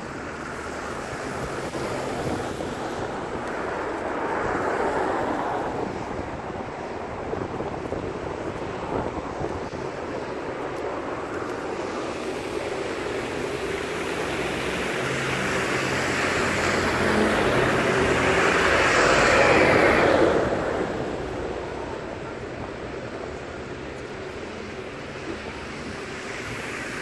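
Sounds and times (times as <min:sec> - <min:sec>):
bus engine hum: 0:00.0 - 0:27.0
tyre hiss on wet road: 0:09.8 - 0:21.6, 0:24.1 - 0:27.0.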